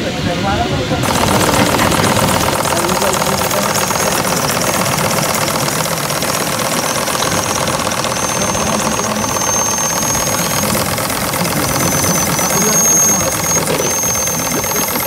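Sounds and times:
model steam engine ticking: 0:01.0 - 0:15.0.

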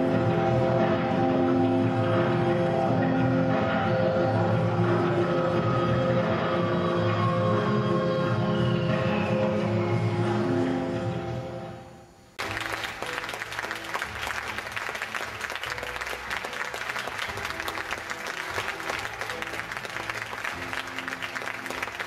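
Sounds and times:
music: 0:00.0 - 0:22.0
audience clapping: 0:12.4 - 0:22.0.

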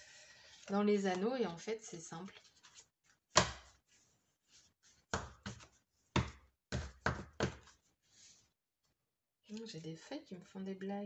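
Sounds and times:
paper pages knocking on table: 0:05.1 - 0:07.8.

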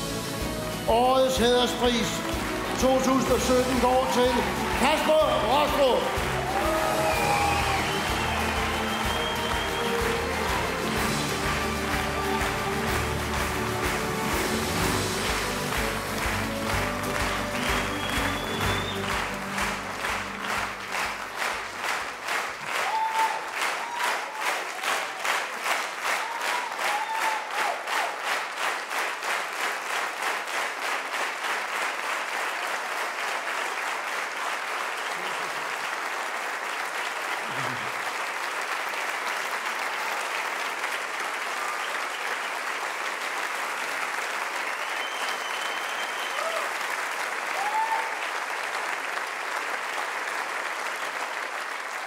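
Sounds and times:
audience applauding: 0:00.0 - 0:52.0
whistles from audience: 0:06.6 - 0:10.4, 0:17.6 - 0:19.7, 0:41.6 - 0:42.4, 0:44.5 - 0:46.9, 0:47.5 - 0:48.3.

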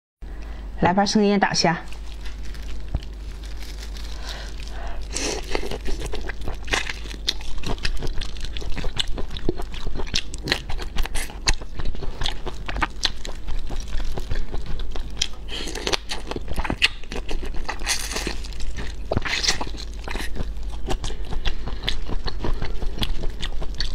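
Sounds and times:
chewing crunchy shrimp shells: 0:01.8 - 0:23.9.

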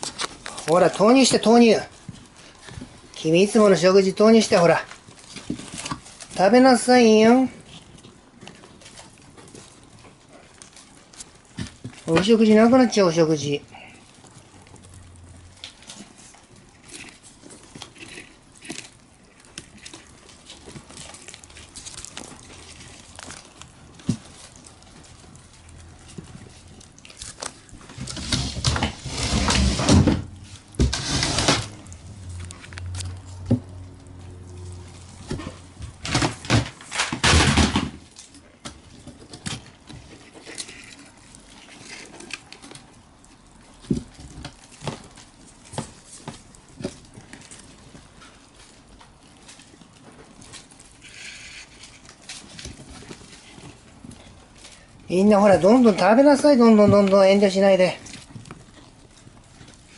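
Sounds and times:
paper rustling and scraping: 0:00.0 - 0:43.0, 0:43.7 - 0:59.9
claws scratching on paper: 0:30.6 - 0:32.0, 0:50.6 - 0:54.0.

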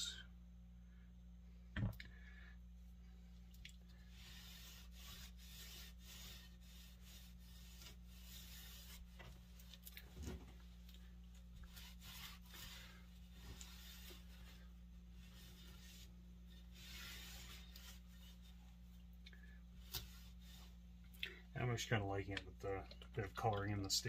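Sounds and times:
steady low hum: 0:00.0 - 0:24.0
cloth rubbing on wood: 0:04.0 - 0:19.0, 0:19.7 - 0:21.0.

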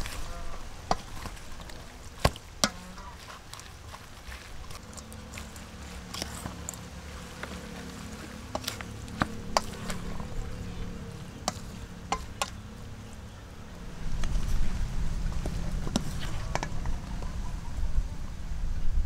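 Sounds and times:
wet noodles squelching: 0:00.0 - 0:16.9
low hum: 0:00.0 - 0:19.0.

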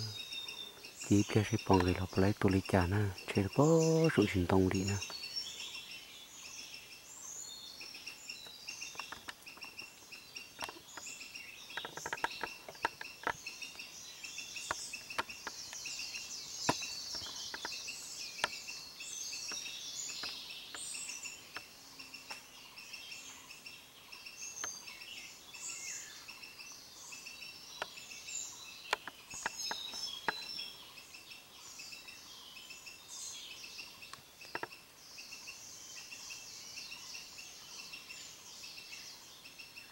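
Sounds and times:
birds chirping and trilling: 0:00.0 - 0:39.9
faint clicks: 0:11.7 - 0:13.8.

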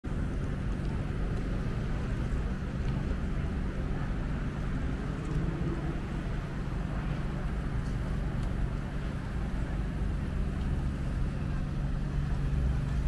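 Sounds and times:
city traffic rumble: 0:00.0 - 0:13.0.

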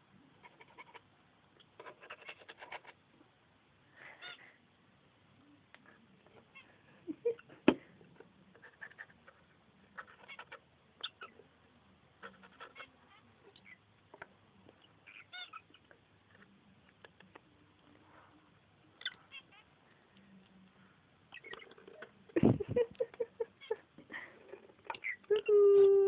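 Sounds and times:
bird squeaks and chirps: 0:10.0 - 0:11.4, 0:15.0 - 0:15.9, 0:19.0 - 0:19.7, 0:21.3 - 0:21.9, 0:24.9 - 0:25.5.

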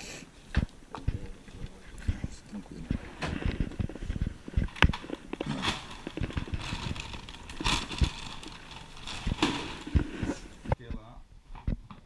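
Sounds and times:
bags and clothes rustling: 0:01.3 - 0:10.7
boxes knocking and thumping: 0:02.0 - 0:12.0.

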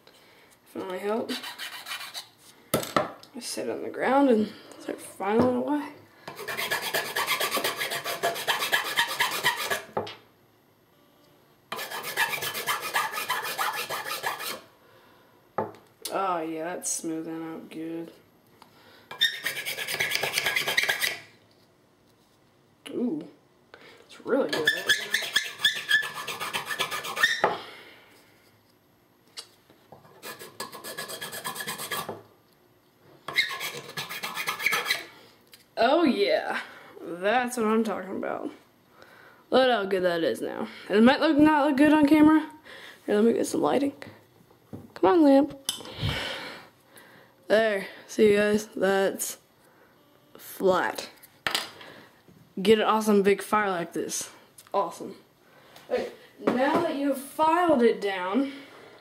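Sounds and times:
metal file rasping: 0:01.3 - 0:02.3, 0:06.3 - 0:09.9, 0:11.7 - 0:14.6, 0:19.1 - 0:21.2, 0:24.5 - 0:27.4, 0:30.1 - 0:32.1, 0:33.3 - 0:35.1.

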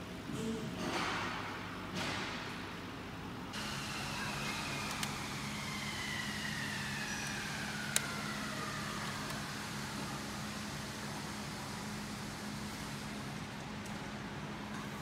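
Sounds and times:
low hum of machinery: 0:00.0 - 0:15.0
high whine falling in pitch: 0:03.6 - 0:13.2.

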